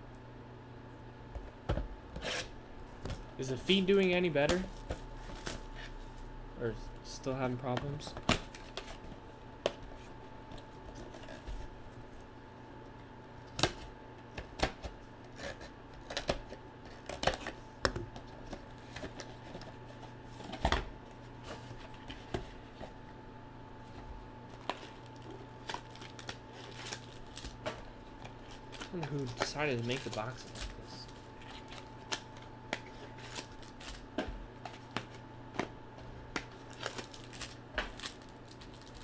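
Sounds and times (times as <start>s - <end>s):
faint hum: 0.0s - 39.0s
card packs clicking and crinkling: 7.3s - 9.9s, 13.4s - 23.0s, 23.8s - 39.0s.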